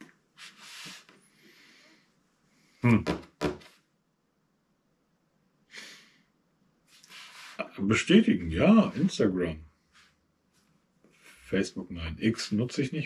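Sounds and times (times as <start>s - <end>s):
soft breath: 0.4s - 2.8s
man's short vocal sounds: 2.8s - 3.3s.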